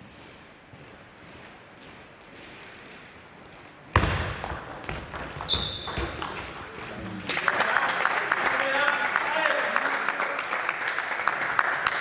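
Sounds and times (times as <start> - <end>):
table tennis ball hits and bounces: 3.9 - 7.3
short high squeak: 5.5 - 6.0
people clapping: 6.1 - 12.0.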